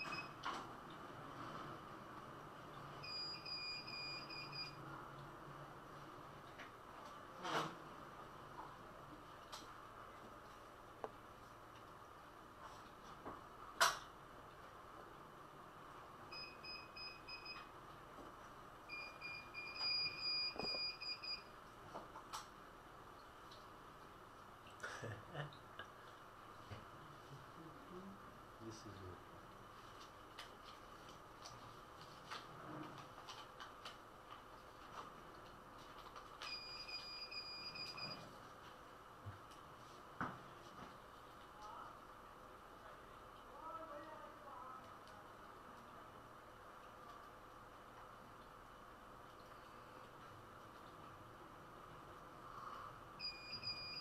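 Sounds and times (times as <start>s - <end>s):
high electronic beep: 3.0s - 4.8s, 18.9s - 21.4s, 53.2s - 54.0s.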